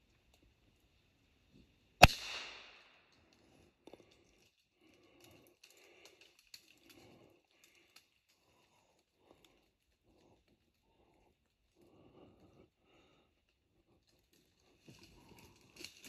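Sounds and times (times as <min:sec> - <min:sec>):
rifle shot: 0:02.0 - 0:02.9.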